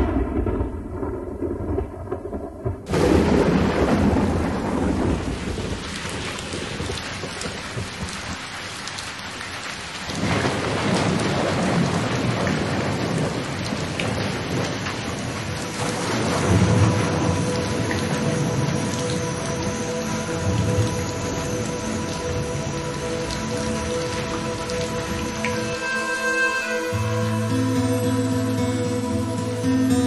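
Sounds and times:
thunder: 0:00.0 - 0:08.4, 0:10.1 - 0:25.8
heavy rain: 0:00.0 - 0:30.0.

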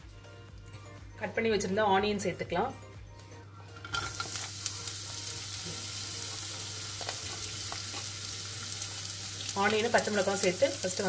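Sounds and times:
onions sizzling in hot oil: 0:03.9 - 0:11.0.

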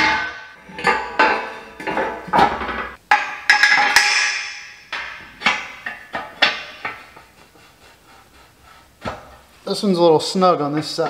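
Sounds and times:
heavy steel parts clanking: 0:00.0 - 0:07.2.

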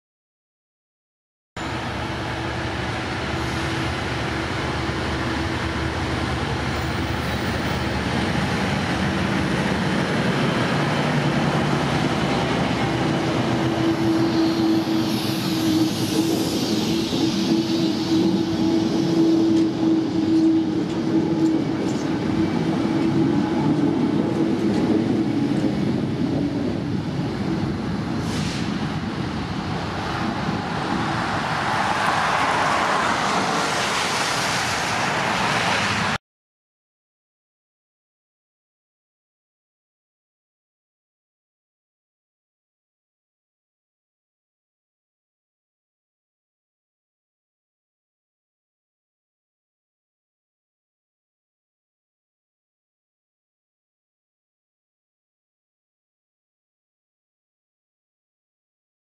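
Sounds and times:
diesel locomotive engine drone: 0:01.6 - 0:36.2
train wheels rolling on rails: 0:01.6 - 0:36.2.

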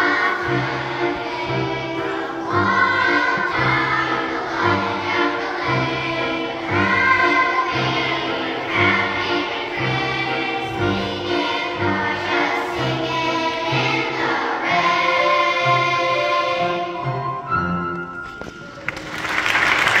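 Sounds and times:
children's choir singing: 0:00.0 - 0:17.8
applause: 0:18.7 - 0:20.0.

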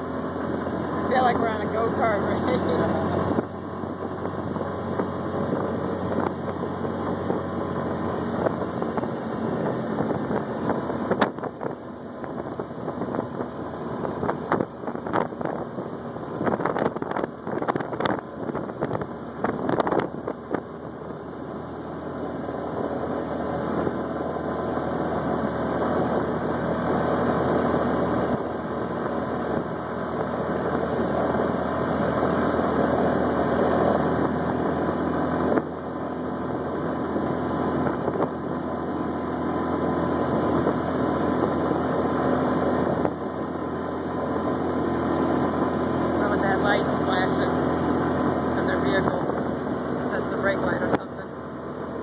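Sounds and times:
small engine running: 0:00.0 - 0:52.0
wind buffeting the microphone: 0:00.8 - 0:21.2.

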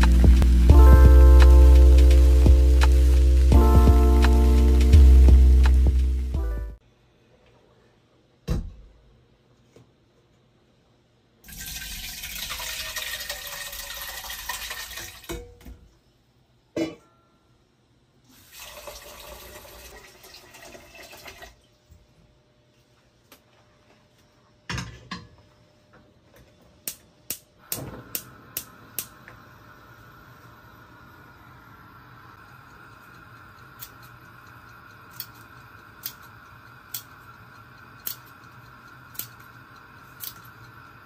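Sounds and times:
tap water running: 0:00.0 - 0:06.4, 0:11.4 - 0:15.4, 0:18.3 - 0:21.6
gas burner hissing: 0:00.0 - 0:06.8, 0:26.8 - 0:41.0
gas igniter clicking: 0:26.9 - 0:29.4, 0:33.1 - 0:40.8.

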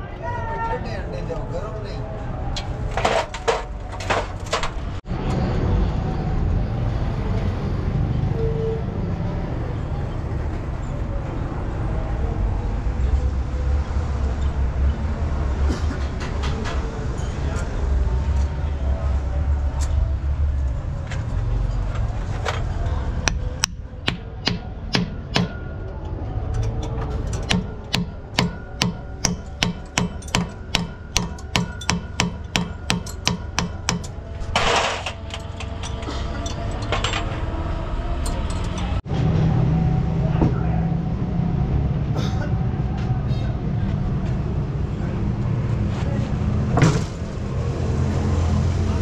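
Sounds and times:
hammer blows: 0:23.2 - 0:25.7, 0:27.4 - 0:37.5.

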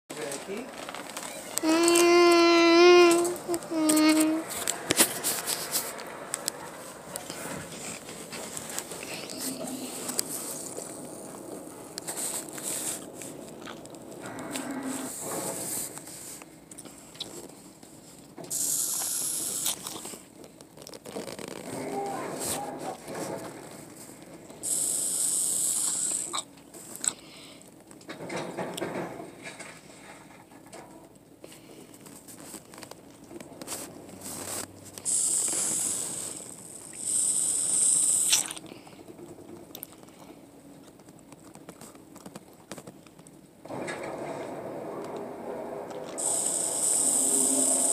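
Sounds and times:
boy sucking from sippy cup: 0:01.6 - 0:05.8, 0:09.0 - 0:10.8, 0:18.5 - 0:20.1, 0:24.6 - 0:27.2, 0:35.0 - 0:38.7, 0:46.2 - 0:47.9
loud hiss: 0:18.5 - 0:19.8, 0:24.6 - 0:26.4, 0:35.0 - 0:38.4, 0:46.2 - 0:47.9.

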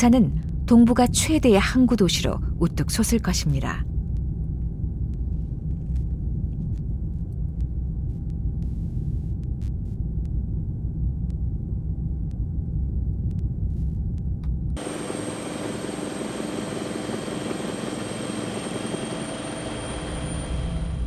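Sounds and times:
low rumble: 0:00.0 - 0:14.9
helicopter in flight: 0:14.8 - 0:21.0
high-pitched turbine whine: 0:14.8 - 0:21.0.

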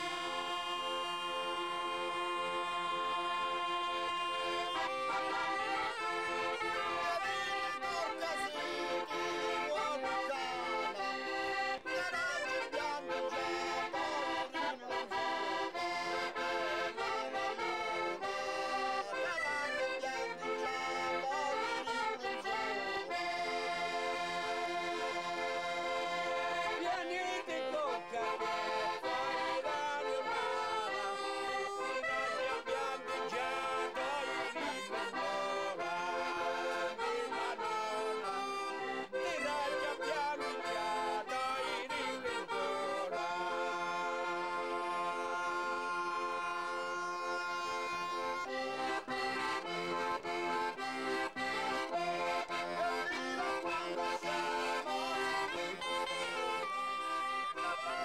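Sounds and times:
accordion playing folk tune: 0:00.0 - 0:58.0.

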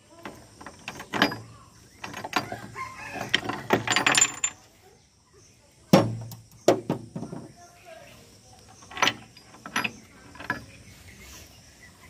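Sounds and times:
gears rattling and clinking: 0:00.2 - 0:04.6, 0:08.7 - 0:10.7.

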